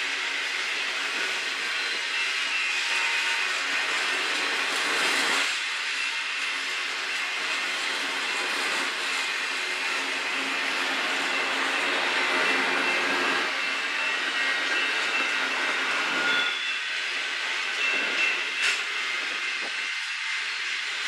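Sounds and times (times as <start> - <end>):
steel wheels rumbling on rail: 0.0 - 21.0
faint high steady tones: 9.3 - 21.0.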